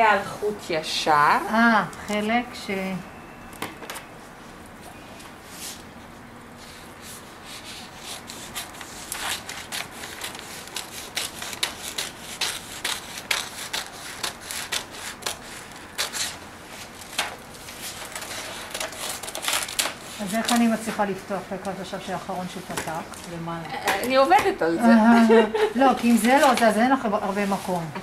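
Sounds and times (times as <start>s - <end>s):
scissors cutting paper: 7.6s - 16.4s, 17.9s - 20.9s
paper rustling and crinkling: 7.6s - 21.0s, 26.0s - 27.9s.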